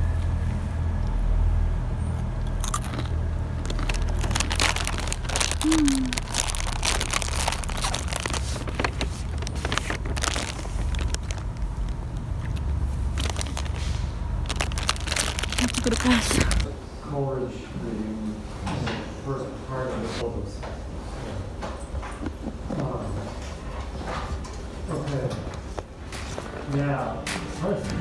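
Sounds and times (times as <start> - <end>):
steady low rumble: 0.0 - 16.7
crunching corn chips: 2.4 - 16.7.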